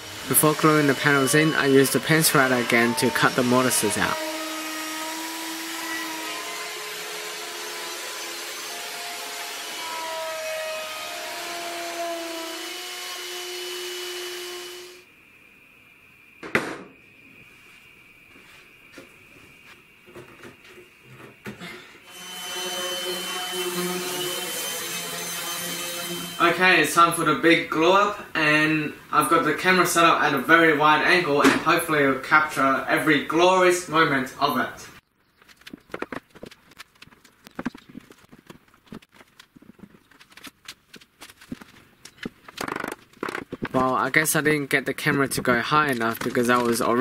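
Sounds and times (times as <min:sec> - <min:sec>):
orbital sander humming and whining: 0:00.0 - 0:15.0
wooden knocks and clatter: 0:35.4 - 0:44.0.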